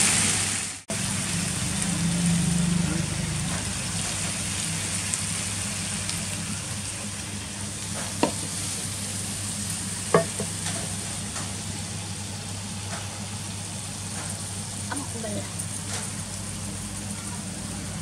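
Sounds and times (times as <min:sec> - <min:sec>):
eel sizzling in a wok: 0:00.0 - 0:18.0
spatula knocking on wok: 0:08.2 - 0:08.4, 0:10.1 - 0:10.9.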